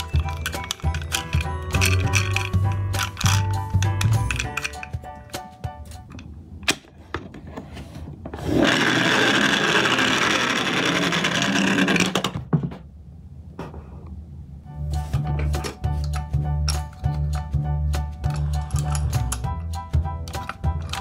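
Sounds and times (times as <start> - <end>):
toy wheels rolling on wood: 0.0 - 4.9, 8.4 - 12.4.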